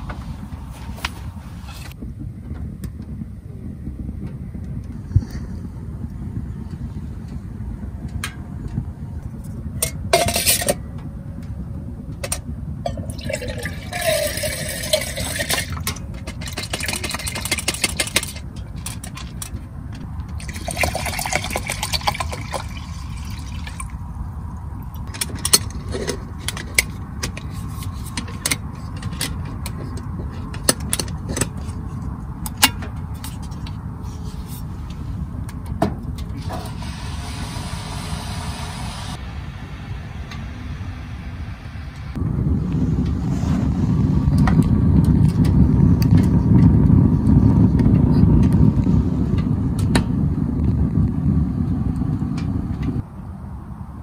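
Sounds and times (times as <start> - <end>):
low steady rumble: 0.0 - 54.0
water pouring into metal pot: 13.1 - 18.1, 20.4 - 24.0.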